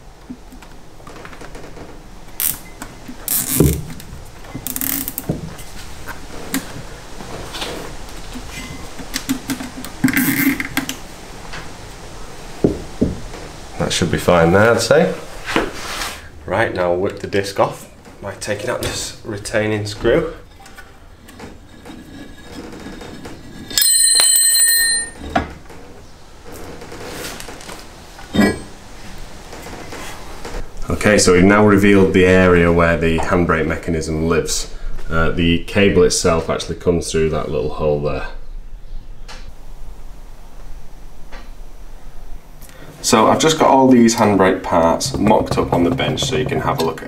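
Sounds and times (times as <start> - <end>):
handling noises: 0.2 - 11.7
cable tie ratcheting: 2.4 - 4.0, 4.6 - 5.3
dull knock: 12.6 - 13.2
brake disc ringing like a bell: 23.7 - 25.2.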